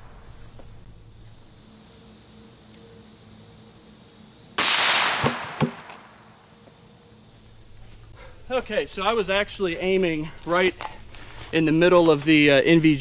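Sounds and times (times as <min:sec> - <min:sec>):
rifle shot: 0:04.6 - 0:06.2
faint sharp cracks: 0:04.6 - 0:06.3.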